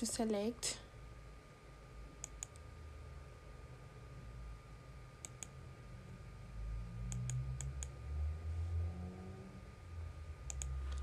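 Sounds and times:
faint background hum: 0.0 - 11.0
computer mouse clicks: 2.2 - 2.6, 5.2 - 5.6, 7.1 - 8.0, 10.5 - 11.0.

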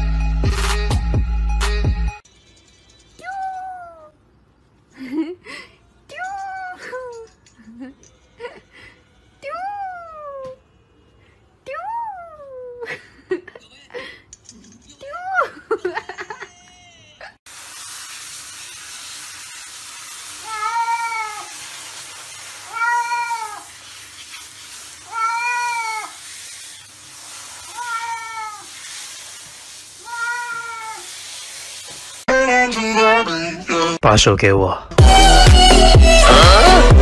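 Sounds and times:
steady hiss: 17.5 - 32.3
cat meowing: 20.4 - 21.5, 22.6 - 23.7, 25.0 - 26.2, 27.7 - 28.7, 30.0 - 31.1.

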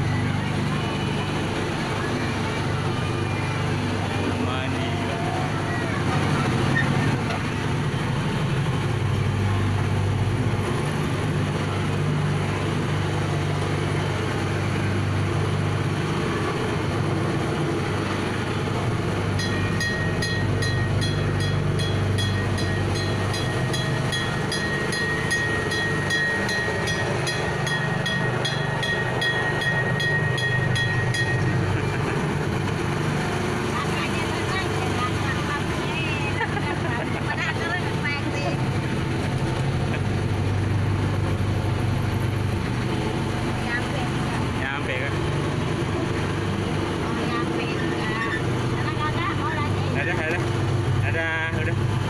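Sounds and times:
train engine running: 0.0 - 52.0
thin high tone: 19.4 - 32.0.

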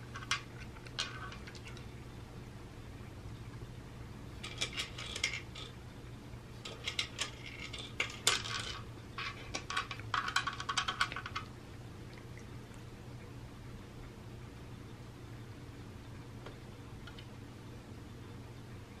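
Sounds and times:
kibble rattling on plastic: 6.6 - 11.5.

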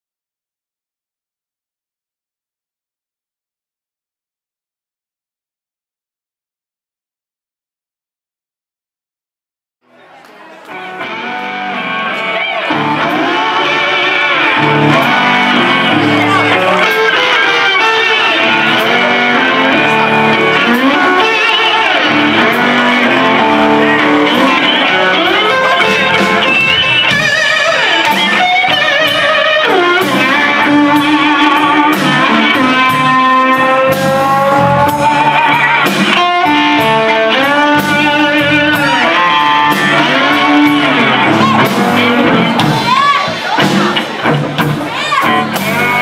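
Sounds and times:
blues band playing: 10.6 - 46.0
slide guitar gliding: 10.7 - 43.0.

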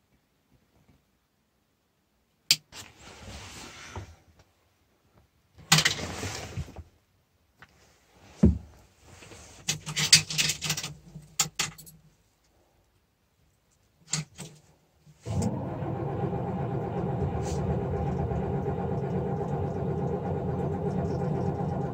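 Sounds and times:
diesel engine starting and running: 15.3 - 21.9.

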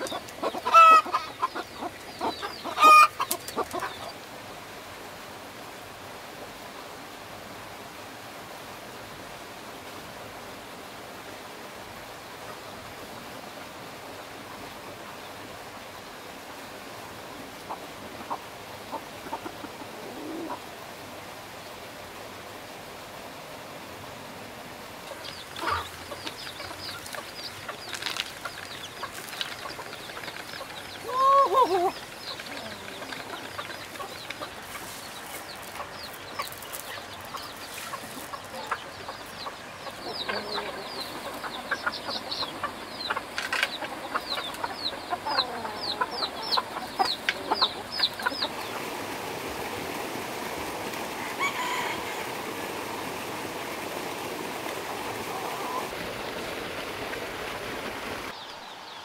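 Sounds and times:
chickens clucking: 0.0 - 4.2, 17.6 - 20.7, 25.0 - 56.1
faint steady hiss: 0.0 - 59.0
chicken squawk: 0.4 - 3.9, 31.0 - 32.0, 51.2 - 52.2.

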